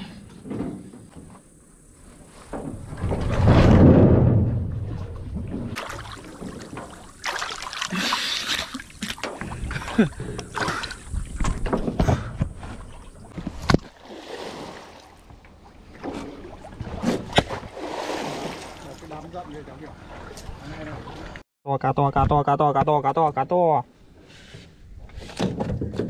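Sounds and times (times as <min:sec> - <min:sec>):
water splashing around boat: 0:01.2 - 0:21.4
knocks and clicks from boat: 0:09.0 - 0:14.0, 0:15.2 - 0:17.7, 0:24.6 - 0:26.0.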